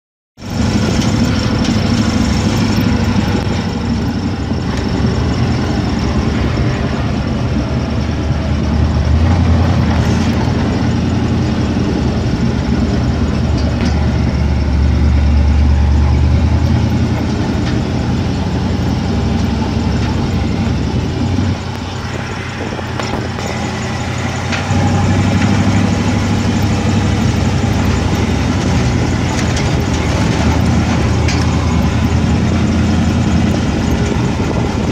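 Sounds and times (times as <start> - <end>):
vehicle engine low drone: 0.4 - 34.9.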